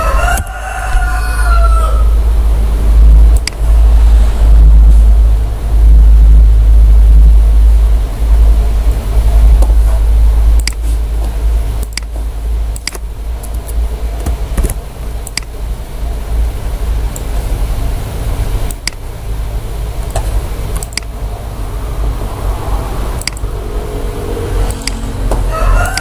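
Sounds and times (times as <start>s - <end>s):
loud deep rumble: 0.0s - 26.0s
computer mouse clicks: 3.3s - 3.6s, 10.6s - 10.9s, 11.8s - 12.1s, 12.8s - 13.8s, 14.6s - 15.5s, 18.7s - 19.0s, 20.1s - 21.1s, 23.2s - 23.5s, 24.7s - 25.1s.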